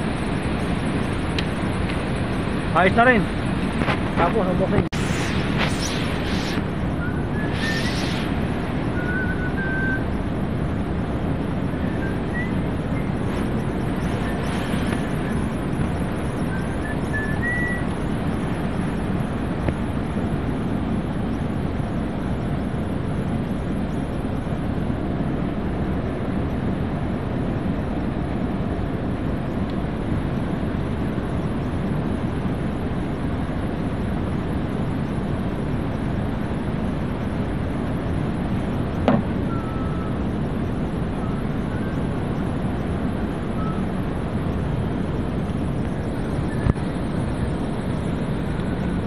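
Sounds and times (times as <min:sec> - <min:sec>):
low outdoor background noise: 0:00.0 - 0:49.0
faint high hiss: 0:04.8 - 0:10.0.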